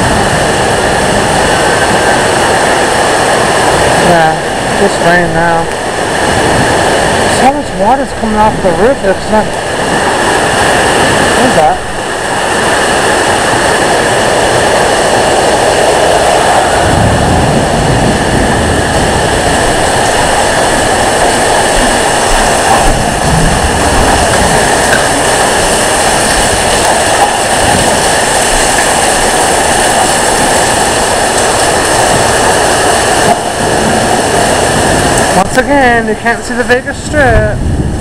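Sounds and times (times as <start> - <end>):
thunder rumbles: 0.0 - 35.9, 37.2 - 38.0
heavy rain pouring: 0.0 - 38.0
wind: 0.0 - 38.0.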